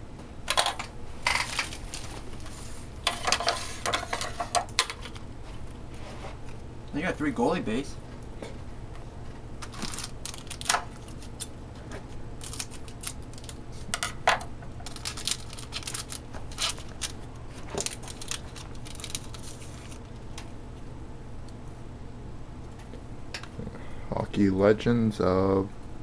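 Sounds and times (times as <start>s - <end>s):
wrapper crinkling: 9.6s - 11.5s, 12.4s - 13.6s, 14.8s - 20.2s.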